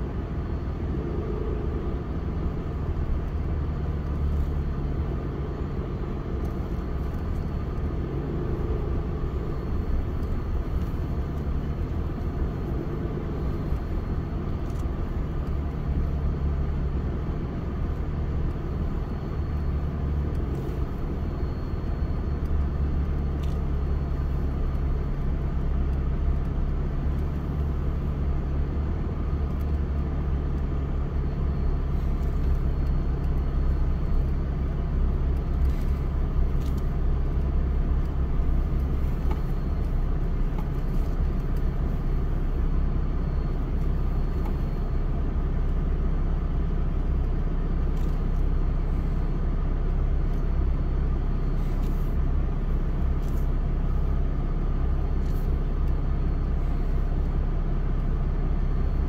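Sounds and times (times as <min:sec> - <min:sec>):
vehicle engine and tyre hum: 0:00.0 - 0:59.0.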